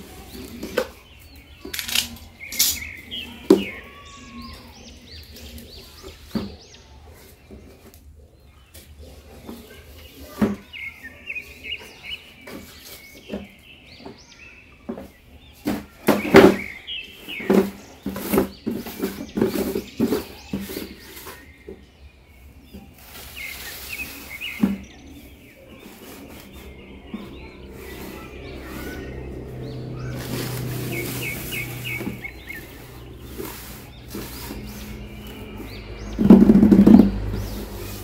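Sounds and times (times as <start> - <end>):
birds chirping faintly: 0.0 - 38.0
cardboard boxes knocking and scraping: 14.9 - 21.9, 25.8 - 38.0.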